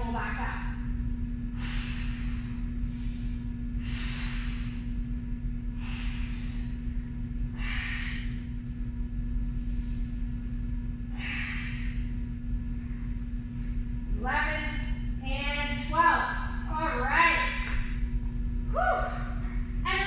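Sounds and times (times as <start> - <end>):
low hum: 0.0 - 20.0
woman breathing hard: 1.5 - 8.7, 9.4 - 13.8.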